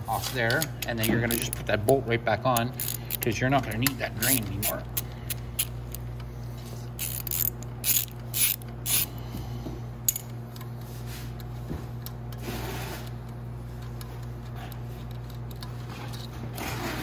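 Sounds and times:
socket ratchet clicking: 0:02.5 - 0:06.0, 0:07.0 - 0:09.1.

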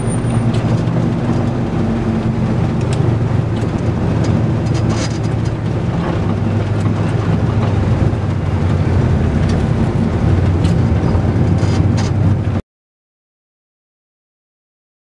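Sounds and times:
truck engine drone in cabin: 0:00.0 - 0:12.6.

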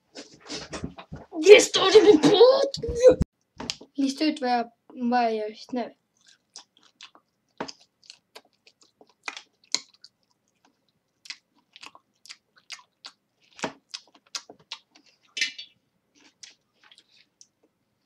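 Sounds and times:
person chewing crunchy food: 0:06.1 - 0:15.4, 0:16.1 - 0:17.6.

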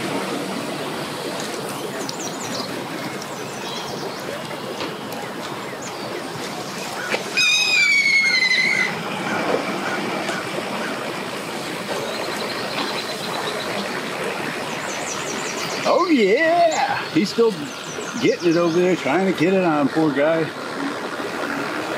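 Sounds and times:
boat engine running: 0:00.0 - 0:21.9
propeller churning water: 0:00.0 - 0:21.9
loud high squeal: 0:07.3 - 0:09.0.

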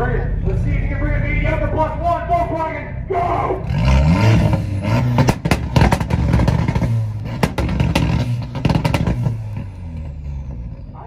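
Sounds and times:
car engine revving on limiter: 0:03.5 - 0:11.0
exhaust pops and cracks: 0:05.1 - 0:10.1.

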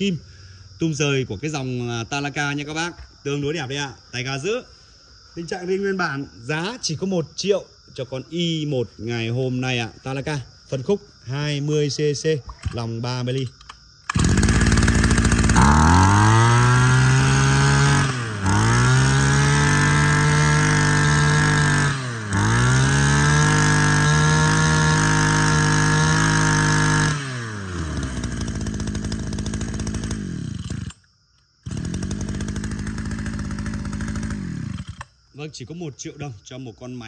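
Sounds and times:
brush cutter engine idling: 0:12.6 - 0:35.2
brush cutter engine revving: 0:14.1 - 0:35.2.

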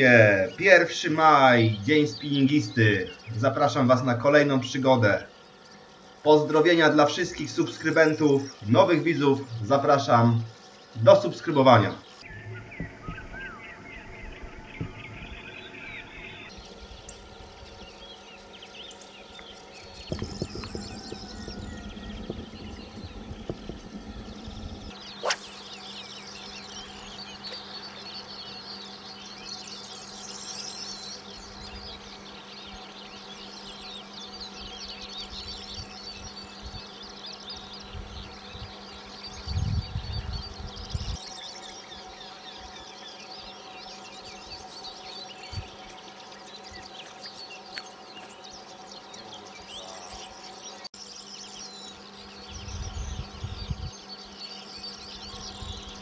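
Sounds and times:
songbirds chorus: 0:00.0 - 0:56.0
low hum: 0:12.2 - 0:32.5
low rumbles: 0:19.7 - 0:25.8.

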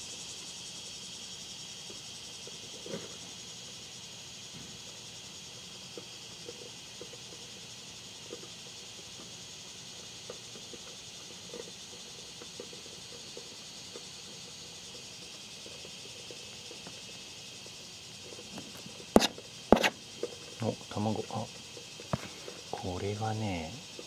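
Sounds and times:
steady high hiss: 0:00.0 - 0:24.0
trowel scraping into substrate: 0:19.2 - 0:20.0.

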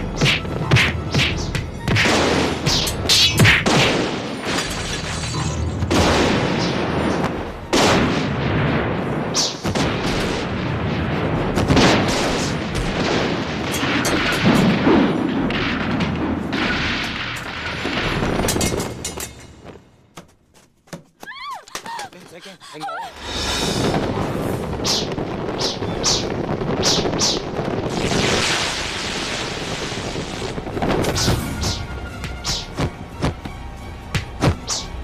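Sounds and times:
explosive booms: 0:00.0 - 0:19.8, 0:23.2 - 0:33.4
dense rushing noise: 0:23.1 - 0:33.8
sharp hits: 0:30.5 - 0:33.5.

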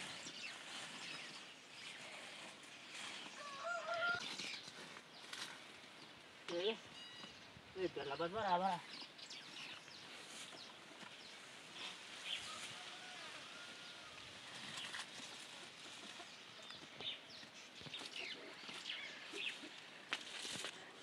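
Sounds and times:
small birds chirping: 0:00.0 - 0:21.0
chickens clucking: 0:11.8 - 0:19.9.

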